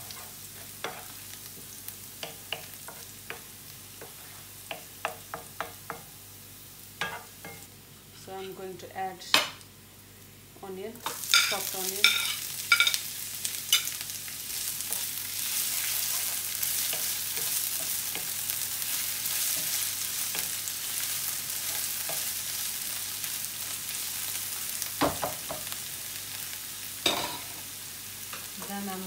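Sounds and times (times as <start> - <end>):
wooden spoon scraping a pan: 0.0 - 4.8, 14.9 - 20.6
onion sizzling in a frying pan: 0.0 - 29.0.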